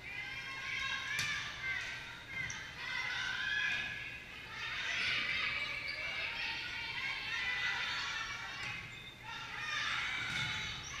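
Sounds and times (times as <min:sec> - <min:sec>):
people shouting and calling: 0:00.0 - 0:11.0.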